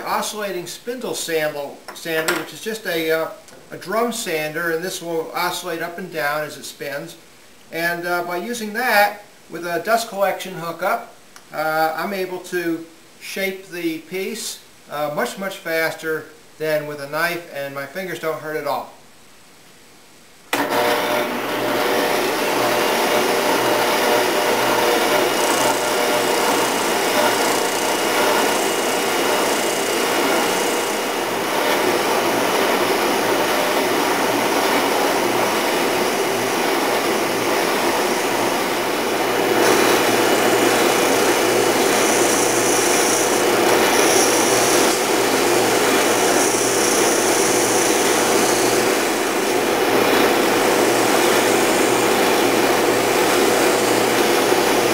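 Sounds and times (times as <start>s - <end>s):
dust collector drawing air: 20.6s - 54.9s
spindle sander running: 20.6s - 54.9s
wood sanding hiss: 22.0s - 54.9s.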